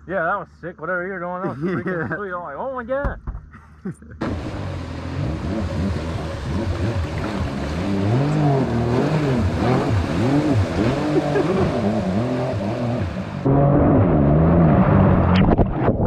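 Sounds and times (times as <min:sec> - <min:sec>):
jet ski engine revving: 0:04.2 - 0:15.4.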